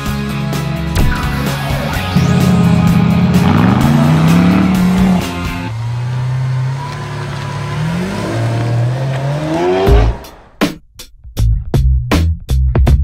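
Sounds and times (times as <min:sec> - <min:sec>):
car engines revving: 0:01.5 - 0:10.6
car engine accelerating away: 0:01.8 - 0:10.5.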